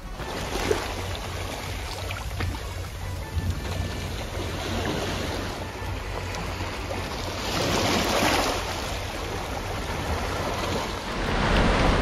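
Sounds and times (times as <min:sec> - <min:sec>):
waves washing against rocky shore: 0:07.4 - 0:12.0.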